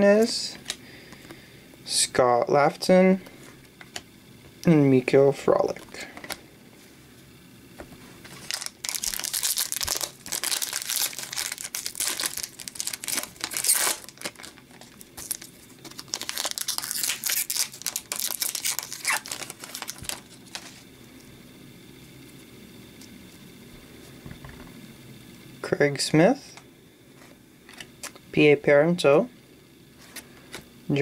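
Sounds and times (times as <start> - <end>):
plastic wrapper crinkling and tearing: 8.3 - 20.8.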